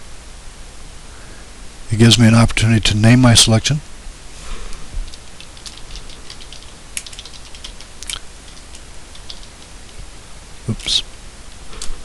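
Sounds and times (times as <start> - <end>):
typing on keyboard: 5.0 - 10.0.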